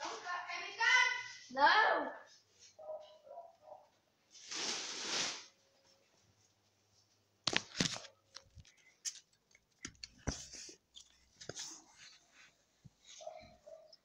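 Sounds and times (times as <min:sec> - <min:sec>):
phone handling clicks and rustles: 0:07.4 - 0:11.6.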